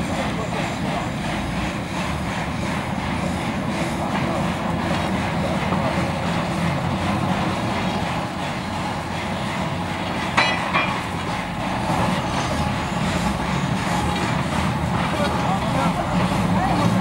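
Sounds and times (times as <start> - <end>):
steam crane running: 0.0 - 17.0
steel bar clanking on rail: 9.9 - 13.3.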